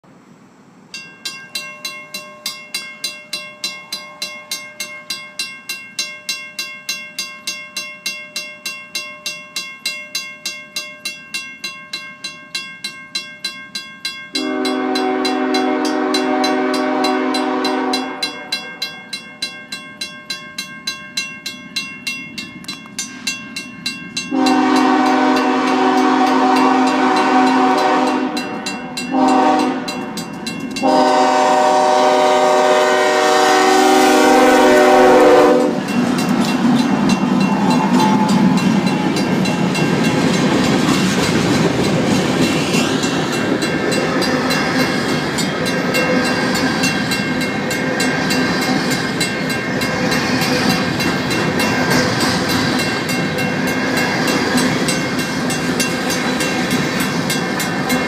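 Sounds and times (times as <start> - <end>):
crossing bell ringing: 0.9 - 58.0
locomotive air horn blasts: 14.4 - 18.8, 24.3 - 30.1, 30.8 - 35.8.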